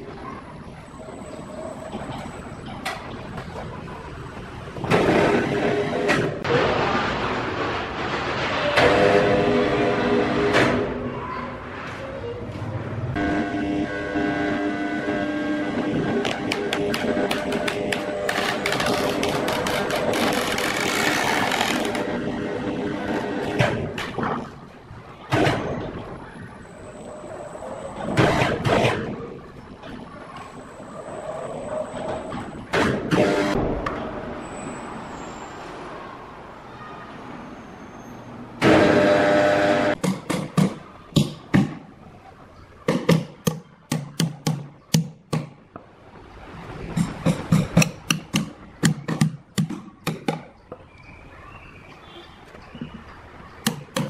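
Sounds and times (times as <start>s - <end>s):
hammer striking timber log: 42.9s - 45.6s, 47.3s - 50.4s.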